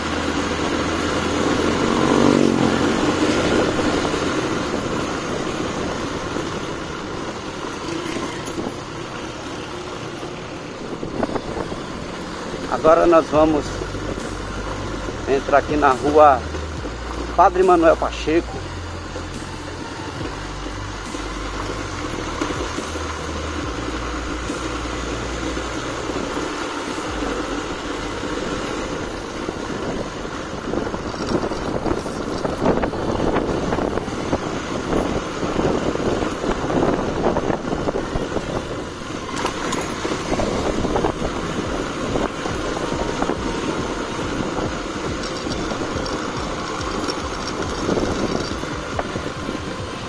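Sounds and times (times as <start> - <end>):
motorcycle engine running: 0.0 - 50.0
road noise: 0.0 - 50.0
wind rumbling on microphone: 0.0 - 50.0.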